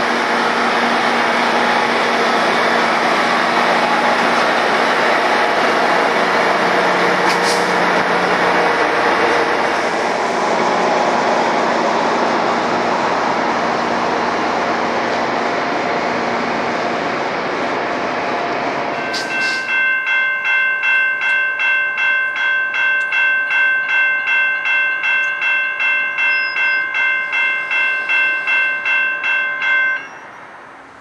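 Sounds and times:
train rumbling at platform: 0.0 - 31.0
crossing bell ringing: 18.9 - 30.5.

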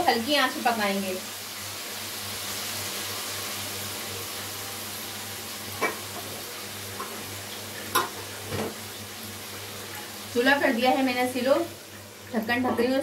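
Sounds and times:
vegetables sizzling in oil: 0.0 - 13.0.

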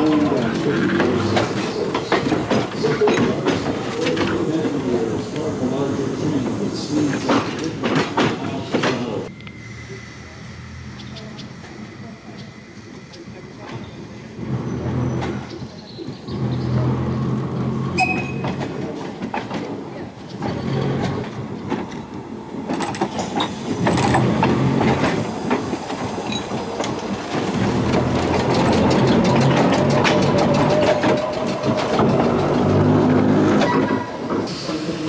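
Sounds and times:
wheels clicking over rail joints: 0.0 - 9.5, 11.0 - 35.0
subway car rolling past: 9.2 - 35.0
rising whine: 9.3 - 13.2.

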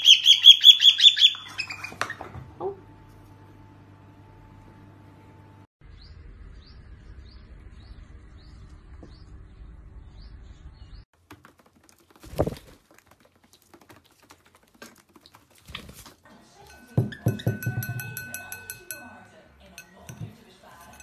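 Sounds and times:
small bird chirping: 0.0 - 2.0.

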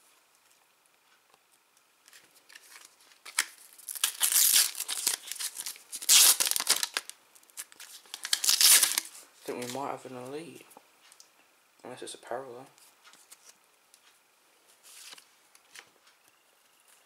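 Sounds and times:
sticker packet wrapper tearing: 2.5 - 9.8.

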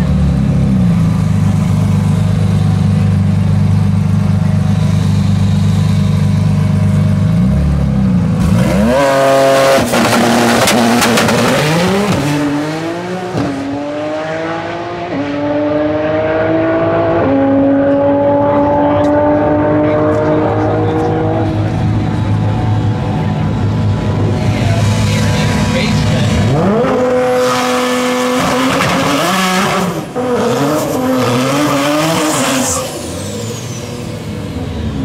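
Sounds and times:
car engine idling: 0.0 - 8.5
car launching and shifting gears: 5.8 - 35.0.

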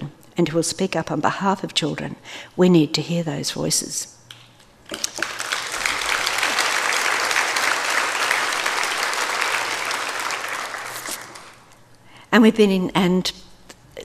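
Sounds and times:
audience applauding: 4.9 - 11.7.

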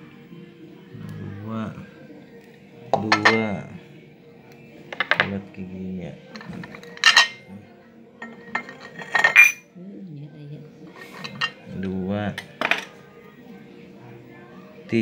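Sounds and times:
metal tin clinking on ceramic bowl: 6.3 - 7.5, 8.2 - 9.6.

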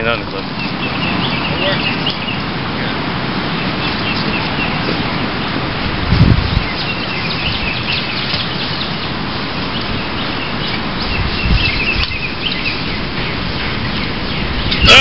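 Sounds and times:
outdoor noise rushing: 0.0 - 15.0
small birds chirping: 0.0 - 15.0.

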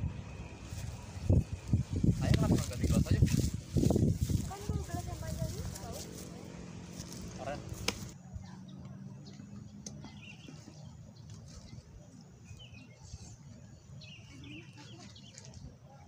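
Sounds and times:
wind rumble on microphone: 0.0 - 6.3
birds chirping: 0.0 - 16.0.

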